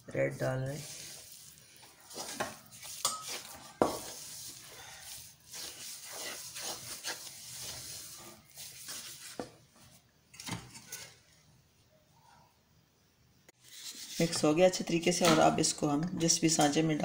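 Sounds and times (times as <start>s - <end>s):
spatula scraping metal pot: 0.7s - 9.5s.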